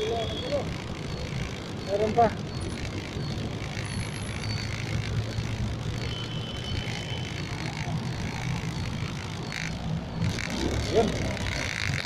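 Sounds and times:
idling traffic rumble: 0:00.0 - 0:12.0.

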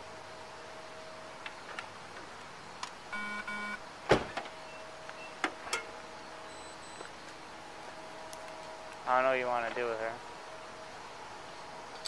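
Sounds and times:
short electronic beeps: 0:03.1 - 0:03.8, 0:06.5 - 0:07.0
loud thump: 0:04.1 - 0:04.4.

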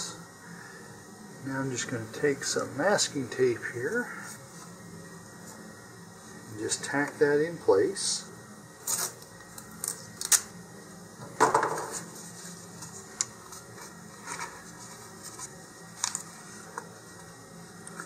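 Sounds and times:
masking tape tearing: 0:08.8 - 0:09.2, 0:09.8 - 0:10.5
paper handling: 0:11.9 - 0:16.9.

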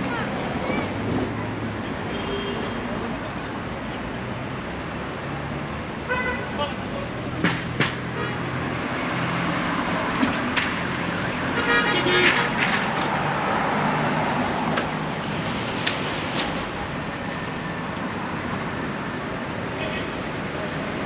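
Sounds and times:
car engines passing: 0:00.0 - 0:21.0
car horn honk: 0:11.6 - 0:12.6.

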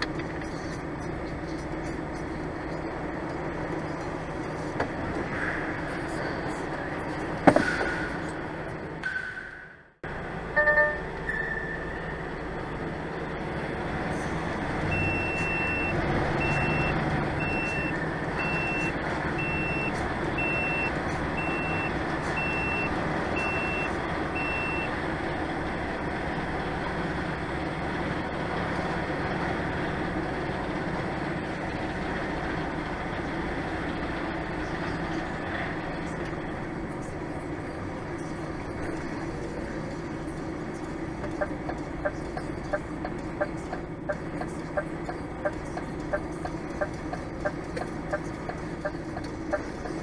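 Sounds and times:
engine rumble: 0:00.0 - 0:50.0
short loud tone: 0:10.6 - 0:12.0
vehicle reversing alarm beeping: 0:10.6 - 0:12.1, 0:14.9 - 0:25.0.

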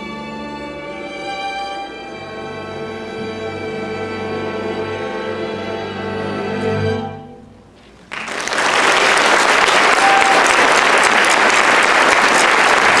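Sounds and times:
audience applause: 0:08.1 - 0:13.0.

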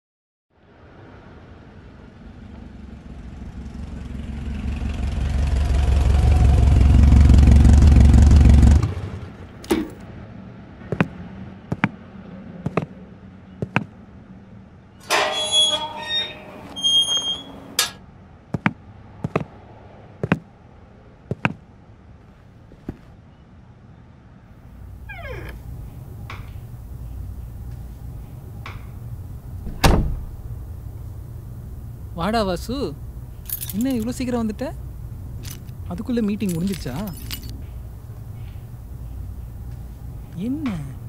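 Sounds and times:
high squeaky tones: 0:15.0 - 0:18.0, 0:24.8 - 0:27.5.

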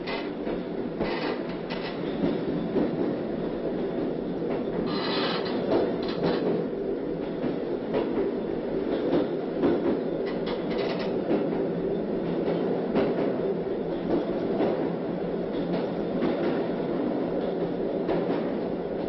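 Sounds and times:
wheels clacking over rail joints: 0:00.0 - 0:02.9, 0:04.6 - 0:06.6, 0:09.1 - 0:11.5
train rumbling on track: 0:00.0 - 0:19.0
wheel screech: 0:04.9 - 0:05.6.

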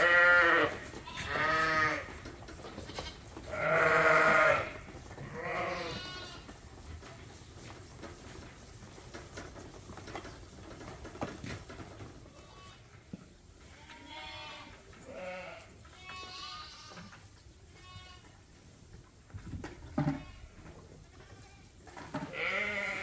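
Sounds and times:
lambs bleating: 0:00.0 - 0:06.5, 0:13.7 - 0:17.0, 0:22.3 - 0:23.0.

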